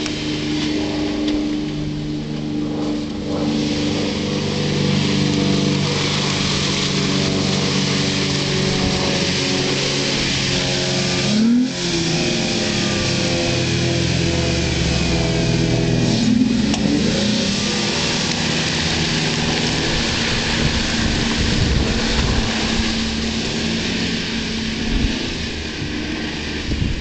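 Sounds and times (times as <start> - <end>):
car engine running under load: 0.0 - 27.0.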